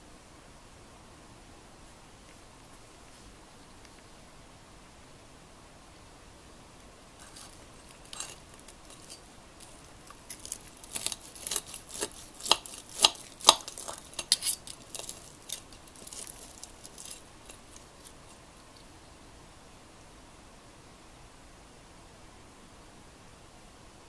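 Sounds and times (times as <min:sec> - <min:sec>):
metal clinking on plate: 0:07.2 - 0:18.4
knife crackling through fried batter: 0:07.2 - 0:18.9.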